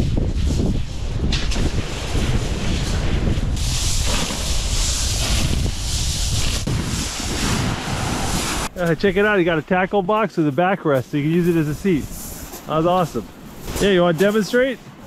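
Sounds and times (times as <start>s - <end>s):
wind buffeting microphone: 0.0s - 9.7s.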